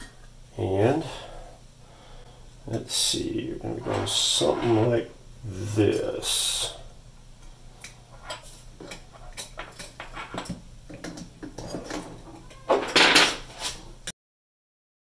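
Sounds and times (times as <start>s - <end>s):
scraping rustle: 3.6s - 5.1s.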